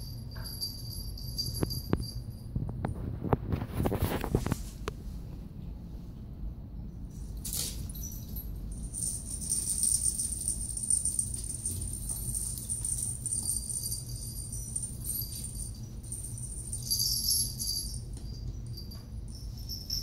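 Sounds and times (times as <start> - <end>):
small collar bells jingling: 0.0 - 2.8, 7.2 - 20.0.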